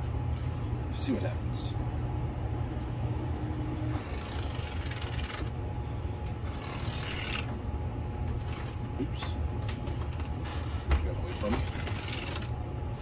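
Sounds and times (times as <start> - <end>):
steady low hum: 0.0 - 13.0
rubbing on fine polishing paper: 10.3 - 12.5.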